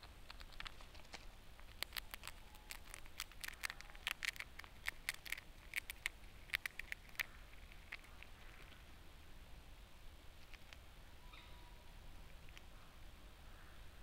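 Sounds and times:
squirrel crunching food: 0.0 - 9.1, 10.2 - 11.0, 11.9 - 13.2.

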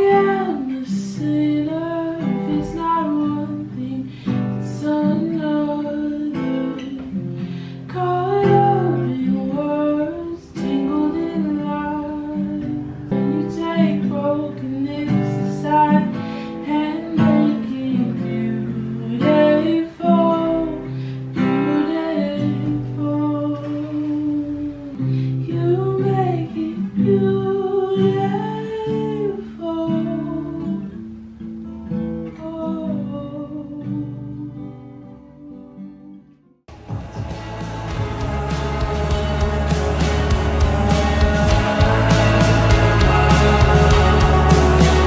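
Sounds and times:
woman singing: 0.0 - 7.2, 7.9 - 31.0, 32.3 - 35.1, 36.8 - 45.0
acoustic guitar strumming: 0.0 - 33.1, 36.7 - 45.0.

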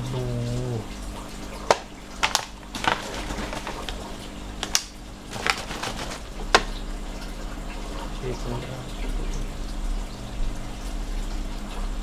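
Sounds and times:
aquarium pumps humming: 0.0 - 12.0
plastic bottle clicking and crackling: 1.6 - 6.8.

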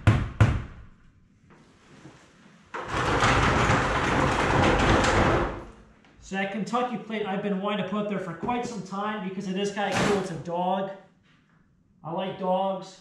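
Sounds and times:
hammer striking a nail: 0.0 - 0.9.

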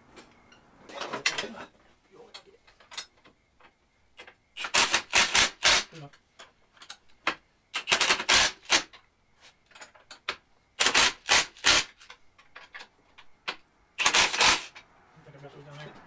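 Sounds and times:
impact driver rattling: 7.8 - 8.9, 14.0 - 14.8.

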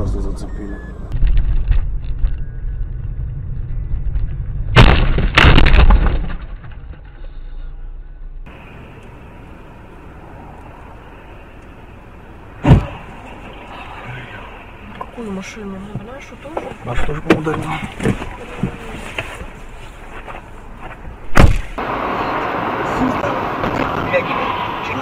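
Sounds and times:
in-car road noise: 0.0 - 25.0
car crash crunching bangs: 4.7 - 7.0, 12.6 - 13.1, 21.3 - 21.8.

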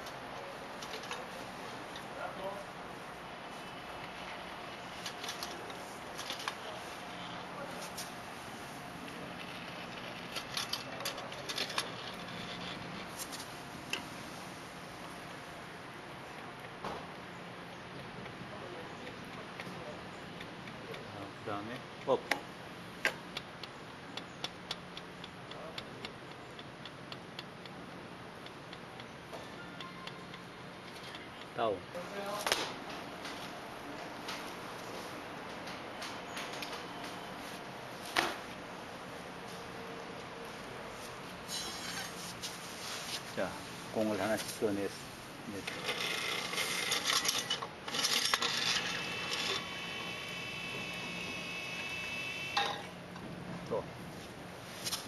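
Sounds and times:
balls clicking: 21.7 - 31.6
balls clattering and knocking: 45.6 - 49.6
high ringing of rolling balls: 45.8 - 53.0.

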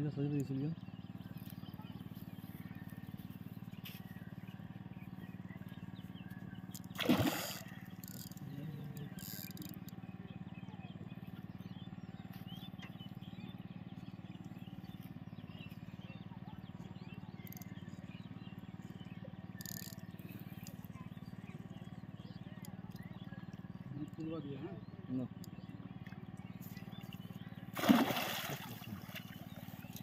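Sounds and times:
steady low hum: 0.0 - 30.0
fish splashing in water: 6.8 - 8.4, 26.8 - 30.0.

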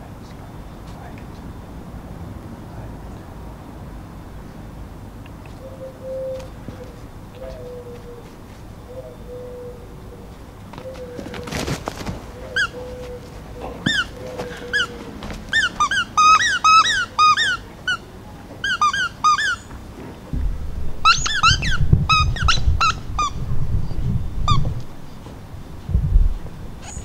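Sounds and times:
squeaky dog toy squeaks: 15.5 - 19.7
low handling rumble: 19.8 - 27.0.

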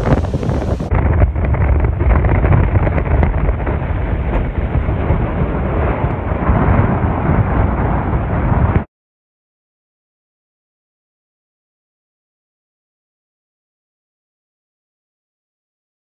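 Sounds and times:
storm wind on microphone: 0.0 - 8.9.

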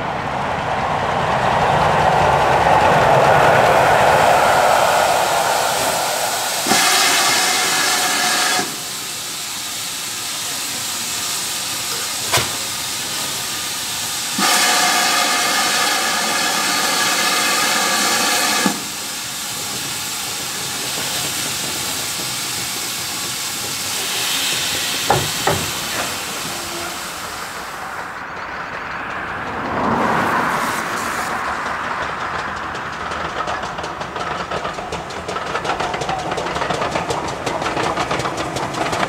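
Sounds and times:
rumble: 0.0 - 6.7
steam locomotive hissing: 0.0 - 39.0.

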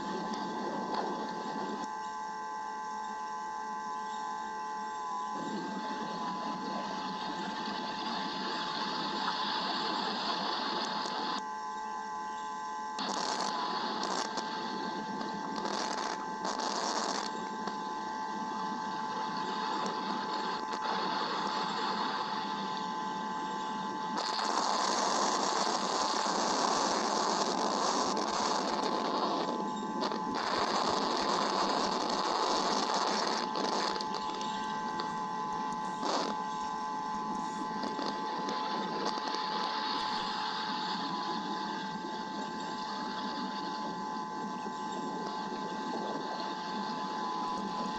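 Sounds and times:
thin electrical whine: 0.0 - 47.9
steady hiss: 5.3 - 11.4, 13.0 - 47.9.

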